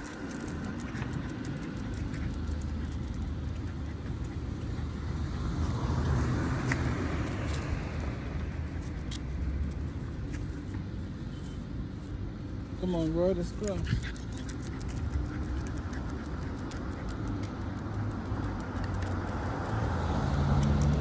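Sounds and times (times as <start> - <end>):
low traffic rumble: 0.0 - 21.0
car driving past: 19.0 - 21.0.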